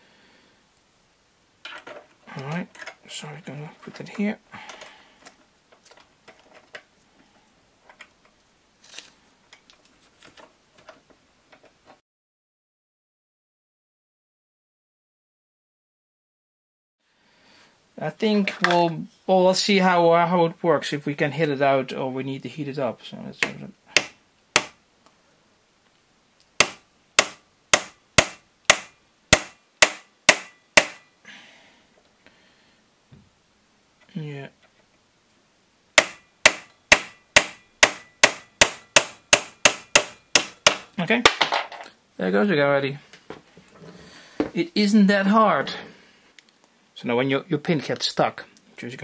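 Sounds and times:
hammer tapping steel pin: 26.6 - 31.1, 36.0 - 40.8.

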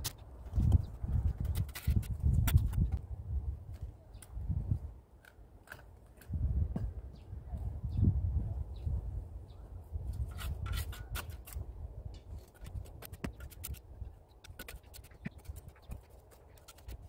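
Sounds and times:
shovel scraping in gritty soil: 0.0 - 3.0, 10.1 - 17.0.

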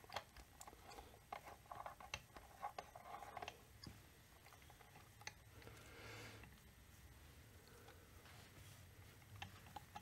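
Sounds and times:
faint clicks and metal taps: 0.0 - 6.7, 9.0 - 10.0.

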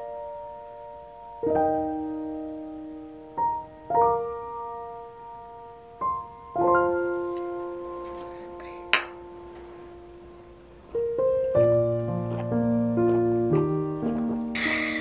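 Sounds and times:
soft solo piano chords: 0.0 - 14.9
beer glasses clinking: 8.9 - 9.2.

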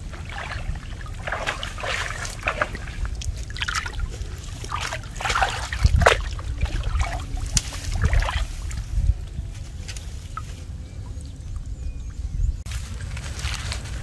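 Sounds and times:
wind rumble on microphone: 0.0 - 14.0
dry leaves crackling and rustling: 7.2 - 10.8, 12.7 - 14.0.

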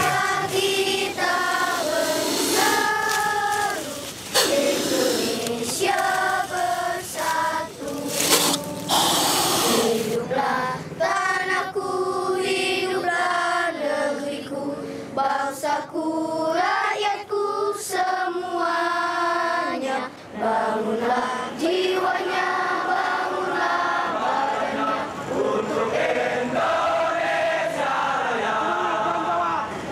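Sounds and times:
loud rushes of noise: 0.0 - 10.3
children singing together: 0.0 - 29.4.

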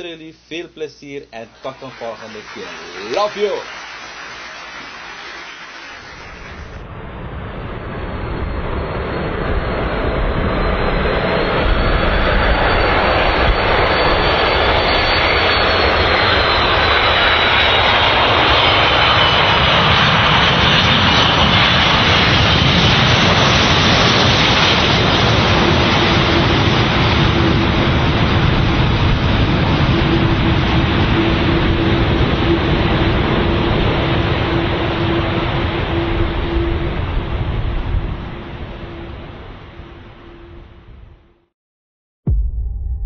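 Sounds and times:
jet airliner engines landing: 0.0 - 41.0
faint whine falling in pitch: 42.3 - 43.0.

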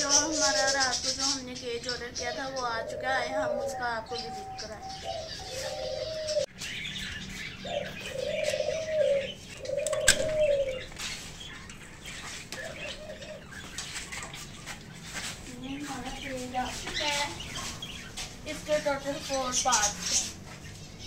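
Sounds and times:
dove cooing: 0.0 - 6.5, 7.4 - 11.2, 12.1 - 14.4
small birds chirping faintly: 0.0 - 21.0.

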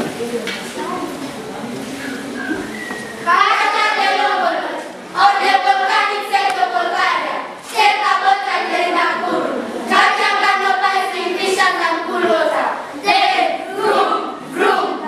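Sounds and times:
children singing in unison: 3.2 - 15.0.

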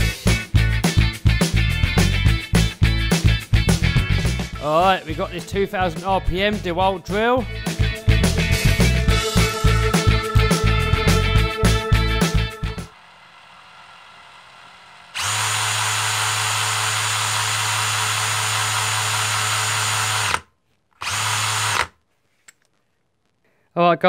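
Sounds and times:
cordless drill running: 12.9 - 22.0.

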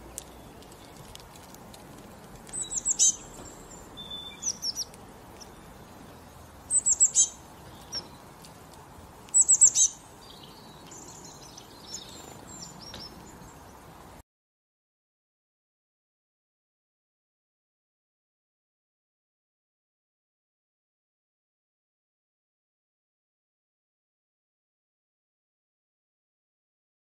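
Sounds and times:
songbird chirping: 0.0 - 14.2.

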